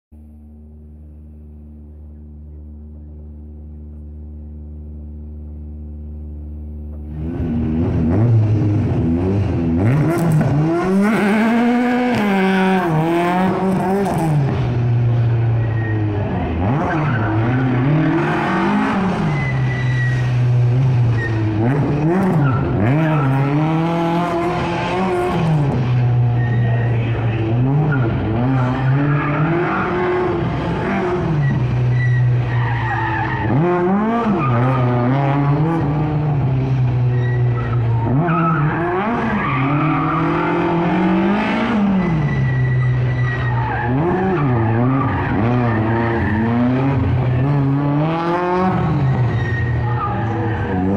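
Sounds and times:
four-cylinder engine revving: 6.9 - 50.9
tyre squeals: 15.6 - 20.3, 21.1 - 21.5, 26.1 - 27.1, 27.8 - 35.0, 37.1 - 40.8, 41.9 - 46.9, 48.8 - 50.9.

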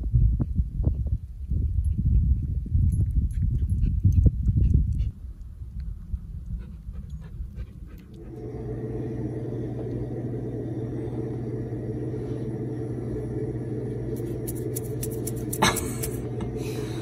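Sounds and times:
wind rumble on microphone: 0.0 - 8.0
mechanical hum: 0.0 - 17.0.

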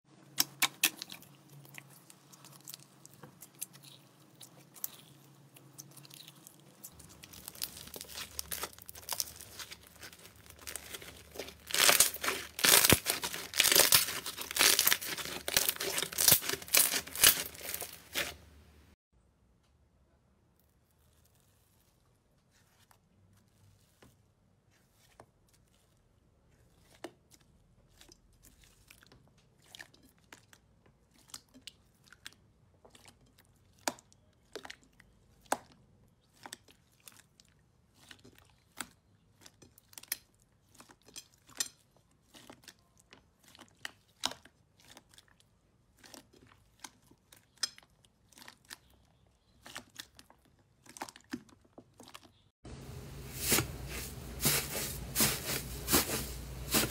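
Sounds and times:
slime crackling and popping: 0.3 - 18.4.

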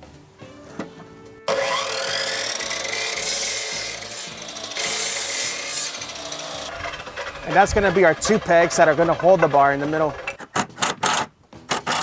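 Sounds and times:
miter saw motor whining: 1.4 - 10.4
saw blade cutting wood: 1.5 - 12.0.

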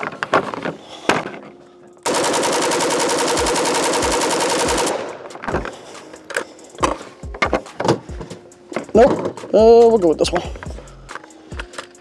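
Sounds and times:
rifle full-auto burst: 2.0 - 5.4.

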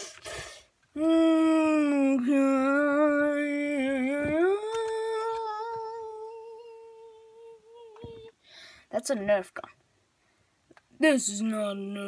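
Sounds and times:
person humming: 1.0 - 8.4.

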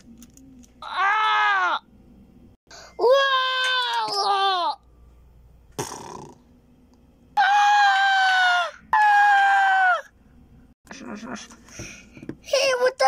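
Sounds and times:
long high screams: 7.4 - 10.1.

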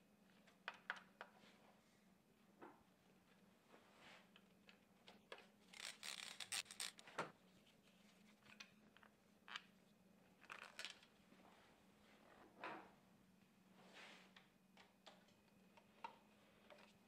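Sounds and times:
chain rustling and scraping: 5.8 - 7.0.

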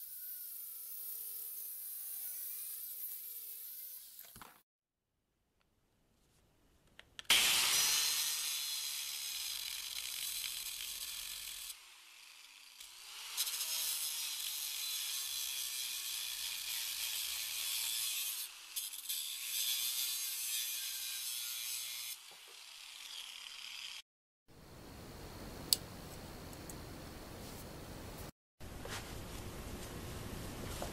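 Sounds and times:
angle grinder grinding metal: 7.3 - 24.0.

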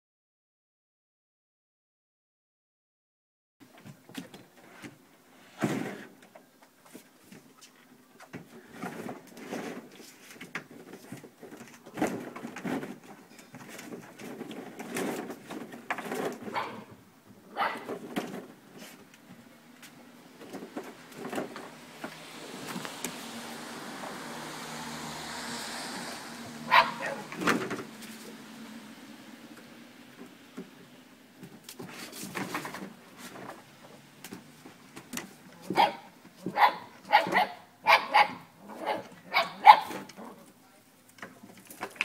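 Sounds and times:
paws scraping on plastic: 8.6 - 16.9
puppy growls and yips: 26.7 - 27.4.

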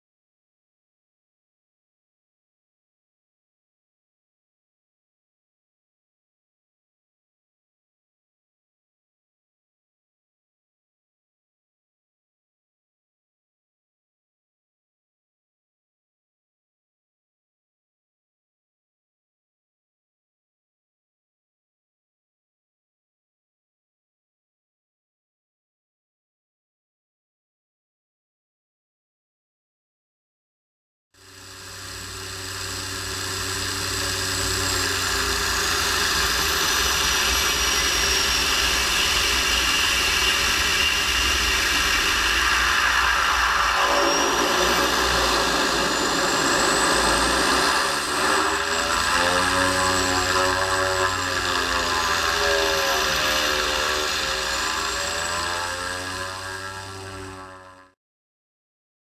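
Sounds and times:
propeller aircraft engine running: 31.2 - 58.0
thin high whine: 31.2 - 58.0.

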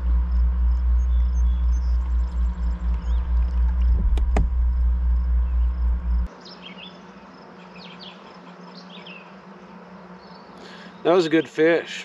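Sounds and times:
songbirds chirping: 0.0 - 4.0, 4.7 - 11.9
loud low rumble: 0.0 - 6.3
faint steady hum: 0.0 - 12.0
sharp clicks: 2.0 - 4.6.

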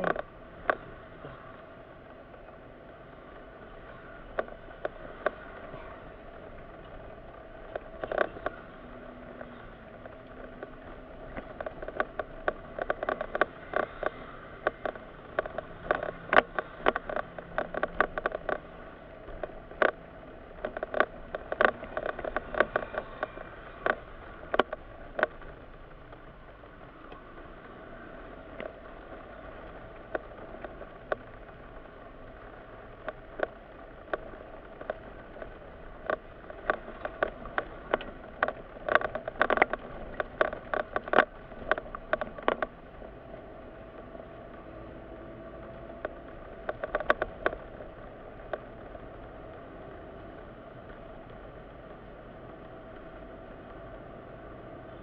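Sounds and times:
clicks and small rattles: 0.0 - 55.0
road and engine hum: 0.0 - 55.0.

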